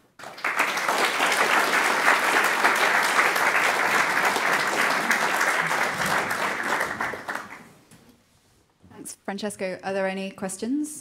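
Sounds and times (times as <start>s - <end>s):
audience applauding: 0.0s - 7.8s.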